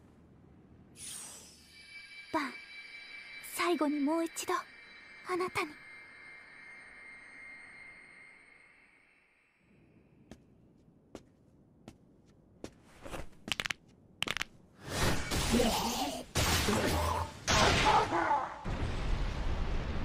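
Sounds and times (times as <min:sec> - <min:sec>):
sharp clicks: 0:13.5 - 0:14.5.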